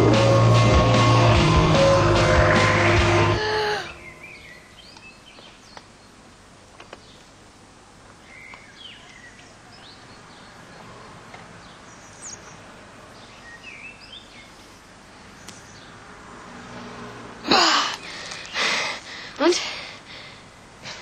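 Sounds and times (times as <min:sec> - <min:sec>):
steady hiss: 0:17.6 - 0:21.0.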